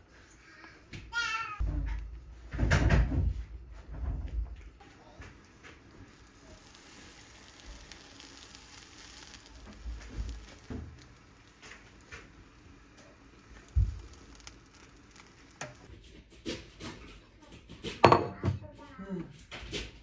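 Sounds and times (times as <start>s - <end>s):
sandwich sizzling in a pan: 0.0s - 15.9s
plate knocking on pan: 18.0s - 18.4s.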